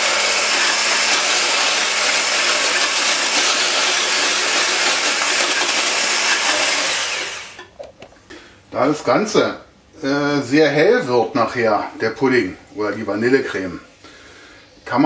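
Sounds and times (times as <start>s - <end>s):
stick blender motor humming: 0.0s - 7.7s.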